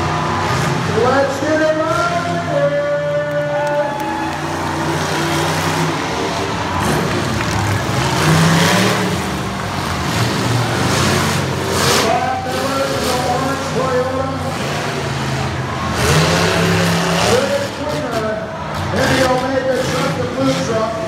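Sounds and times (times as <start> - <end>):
truck engines revving: 0.0 - 21.0.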